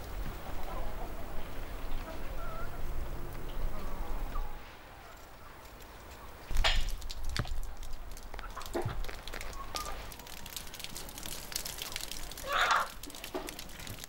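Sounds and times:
wood fire crackling: 4.6s - 14.0s.

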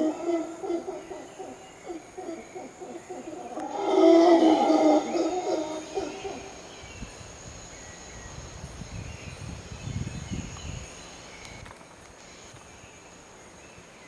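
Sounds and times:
monkey howling: 0.0s - 6.6s
high insect drone: 0.0s - 14.0s.

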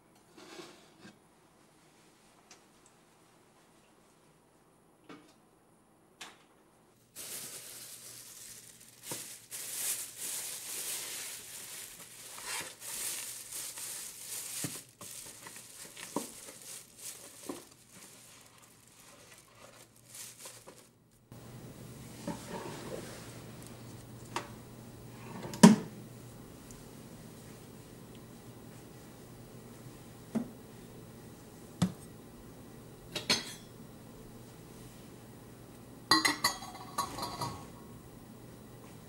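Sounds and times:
paper bag crinkling: 7.1s - 21.3s.

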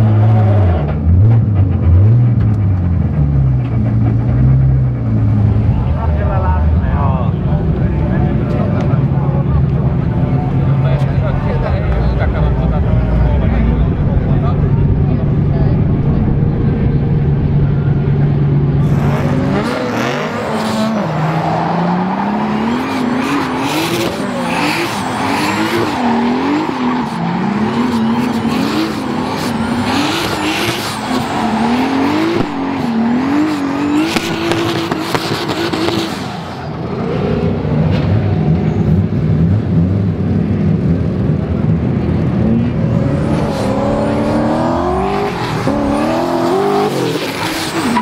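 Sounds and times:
car engine revving: 0.0s - 48.0s
low engine drone: 0.9s - 20.2s.

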